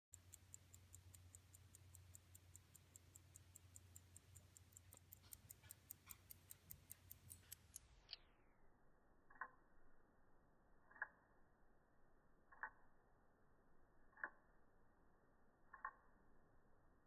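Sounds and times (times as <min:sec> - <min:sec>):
pocket watch ticking: 0:00.1 - 0:08.2, 0:09.3 - 0:09.6, 0:10.9 - 0:11.4, 0:12.5 - 0:12.9, 0:14.1 - 0:14.5, 0:15.7 - 0:16.2.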